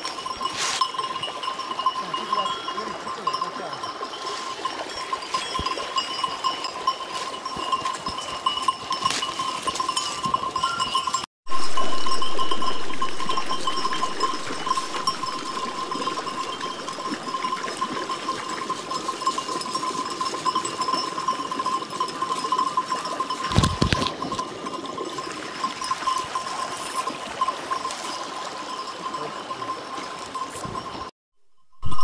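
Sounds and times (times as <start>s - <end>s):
sheep bells clanking: 0.0s - 31.1s
steady high-pitched tone: 11.5s - 17.6s, 31.5s - 32.0s.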